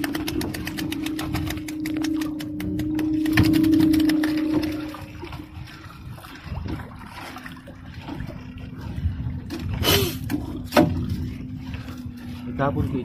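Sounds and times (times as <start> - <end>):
water trickling and dripping: 0.0 - 12.5
water rush: 0.0 - 13.0.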